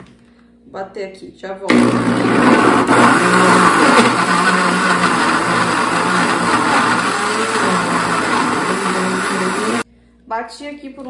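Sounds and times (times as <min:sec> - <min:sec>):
blender motor hum with churning: 0:01.7 - 0:09.8.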